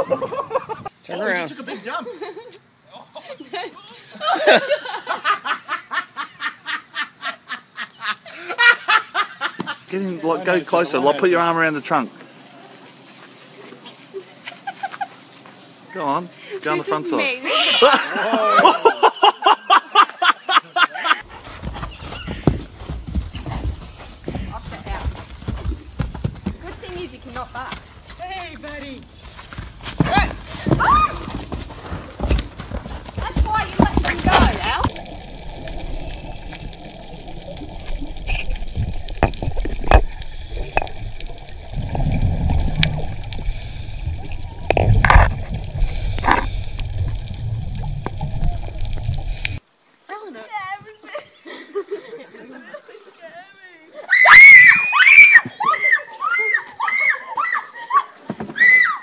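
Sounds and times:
horse hooves thudding on dirt: 0:21.2 - 0:49.6
underwater bubbles gurgling: 0:33.5 - 0:49.6
low rumble: 0:34.5 - 0:49.6
hiss: 0:42.3 - 0:45.0, 0:45.7 - 0:47.9, 0:48.8 - 0:49.6.

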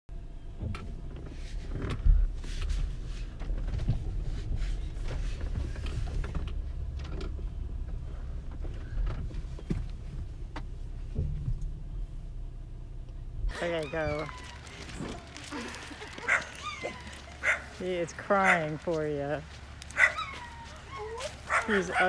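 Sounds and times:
car engine and tyres rumbling: 0:00.1 - 0:22.0.

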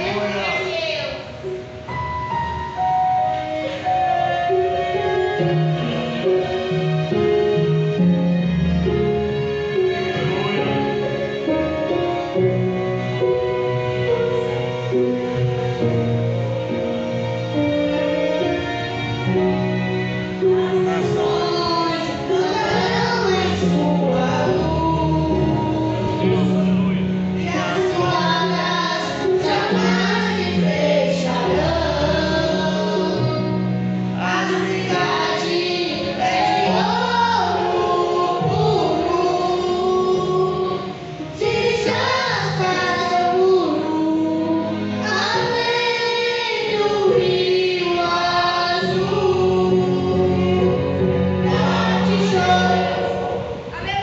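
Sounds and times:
instrumental accompaniment: 0:00.0 - 0:54.0
boy and woman singing: 0:20.6 - 0:26.6, 0:27.4 - 0:33.6, 0:34.2 - 0:54.0.

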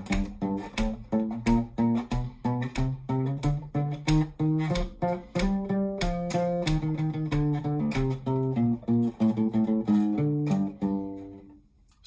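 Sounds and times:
acoustic bass guitar plucking: 0:00.0 - 0:11.5.

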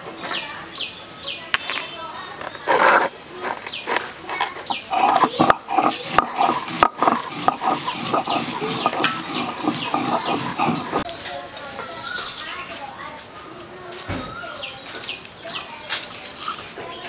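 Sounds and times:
stone roller rasping and knocking: 0:02.6 - 0:11.1.

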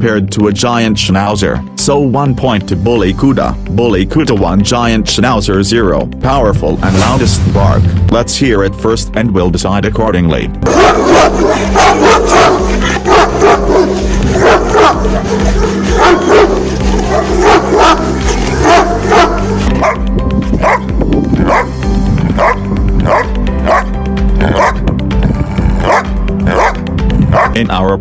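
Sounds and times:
background music: 0:00.0 - 0:28.0
dog barking: 0:10.6 - 0:20.0, 0:20.6 - 0:20.8, 0:21.4 - 0:21.7, 0:22.4 - 0:24.8, 0:25.8 - 0:27.6.

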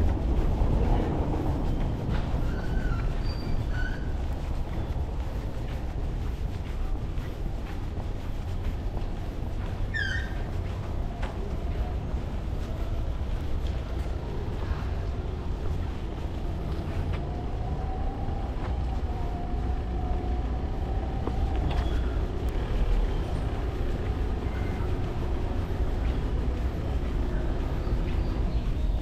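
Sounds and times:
vehicle passing: 0:10.9 - 0:29.0.

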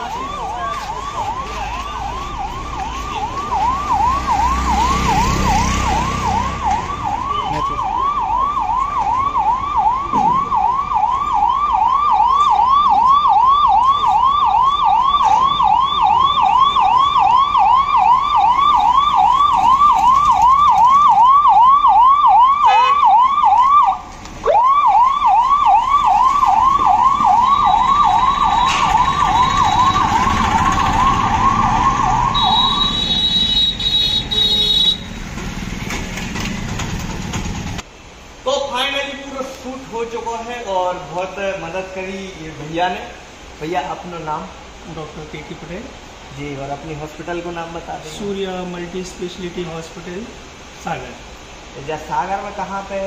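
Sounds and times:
ambulance siren wailing: 0:00.0 - 0:34.9.

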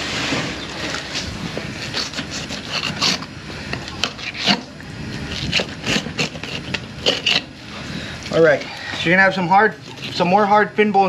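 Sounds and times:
knife scraping fish bones: 0:01.8 - 0:07.6.

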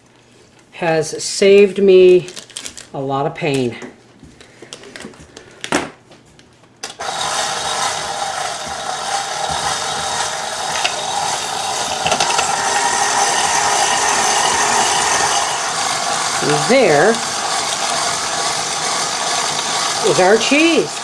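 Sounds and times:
cheese being shredded: 0:07.0 - 0:21.0
stand mixer motor running: 0:07.0 - 0:21.0.

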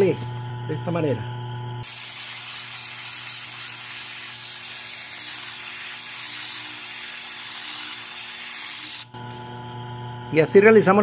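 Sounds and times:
fan motor humming: 0:00.0 - 0:11.0
sandpaper hissing on metal shaft: 0:01.8 - 0:09.1.

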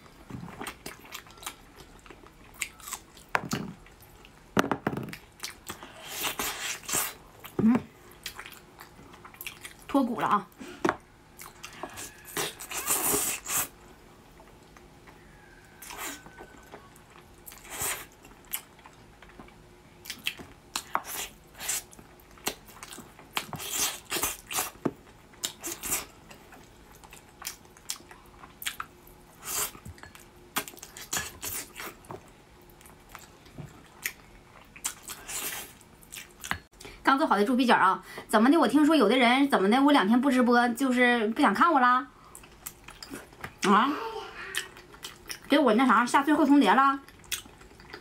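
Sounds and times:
wet chewing and lip-smacking: 0:00.5 - 0:04.4, 0:05.1 - 0:09.9, 0:15.8 - 0:37.0, 0:42.2 - 0:43.7, 0:44.5 - 0:45.5, 0:47.0 - 0:48.0.

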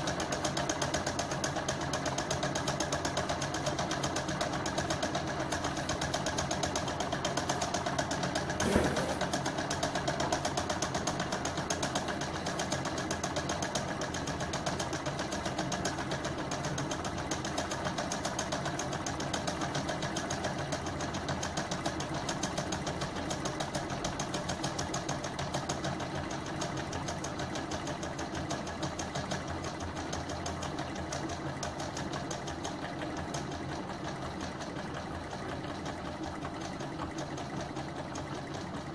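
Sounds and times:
engine mechanical clatter: 0:00.0 - 0:16.2
loud mechanical knock: 0:08.4 - 0:09.7.

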